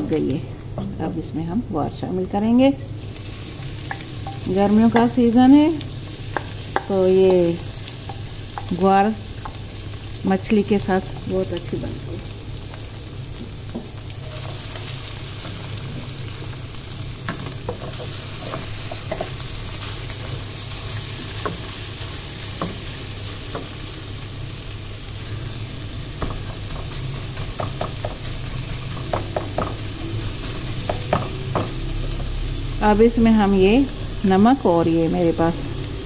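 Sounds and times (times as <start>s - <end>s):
beans sizzling in oil: 0.0s - 36.0s
wooden spoon knocking pot: 3.9s - 5.3s, 27.6s - 28.2s, 29.0s - 29.8s, 30.9s - 31.8s.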